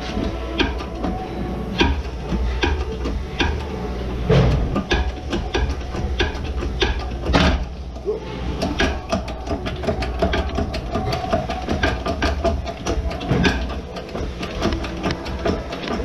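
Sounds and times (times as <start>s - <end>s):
press clicking and ticking: 0.2s - 3.8s, 4.6s - 16.0s.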